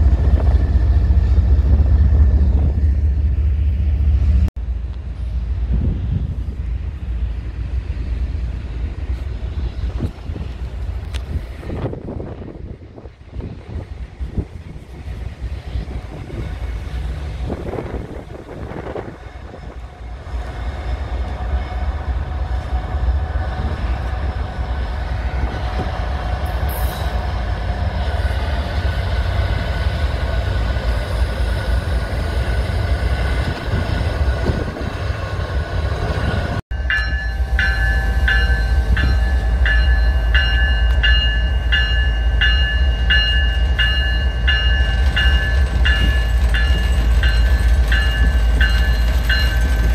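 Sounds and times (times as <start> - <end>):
diesel locomotive engine rumble: 0.0 - 49.9
pulsing high ringing: 36.7 - 49.9.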